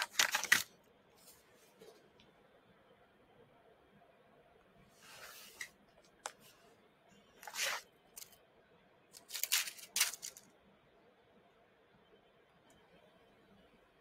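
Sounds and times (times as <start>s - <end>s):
packaging crinkling and tearing: 0.0s - 0.7s, 9.2s - 10.4s.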